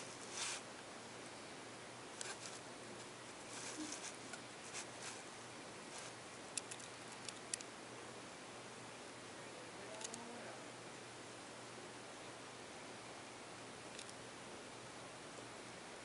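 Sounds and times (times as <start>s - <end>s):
kittens rustling on carpet: 0.0s - 0.7s, 2.2s - 6.3s
low hiss: 0.0s - 16.0s.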